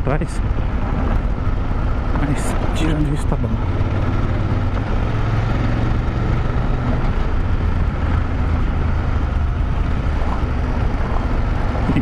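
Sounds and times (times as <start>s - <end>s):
motorcycle engine cruising: 0.0s - 12.0s
wind noise: 0.0s - 12.0s.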